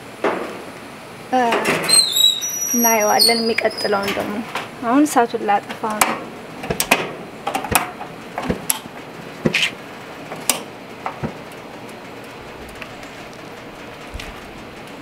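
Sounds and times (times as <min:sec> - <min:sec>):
grill control knobs clicking: 0:05.6 - 0:09.6, 0:10.3 - 0:15.0.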